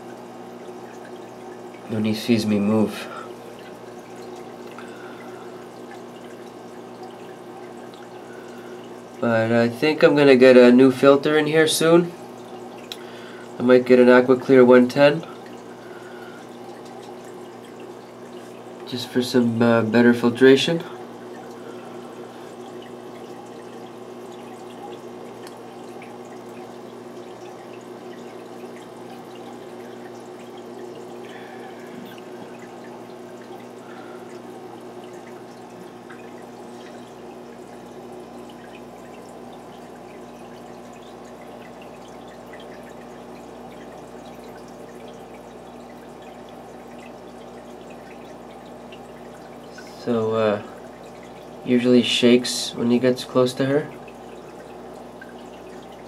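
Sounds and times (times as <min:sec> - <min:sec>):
low steady hum: 0:00.0 - 0:56.0
water trickling into tank: 0:00.0 - 0:56.0.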